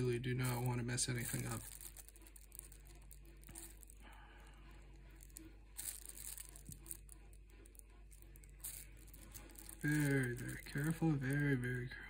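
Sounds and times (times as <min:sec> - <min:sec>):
low room hum: 0:00.0 - 0:12.0
plastic glove rustling: 0:00.0 - 0:12.0.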